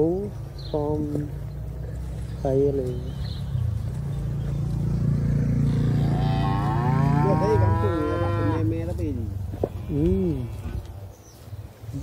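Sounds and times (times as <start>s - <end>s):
calf mooing: 5.7s - 8.7s, 9.6s - 10.9s.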